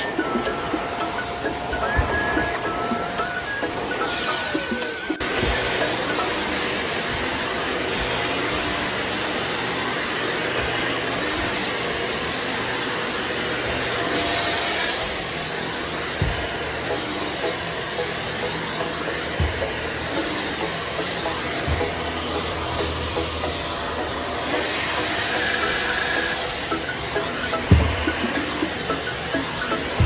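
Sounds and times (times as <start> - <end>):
vacuum cleaner running: 0.0 - 30.0.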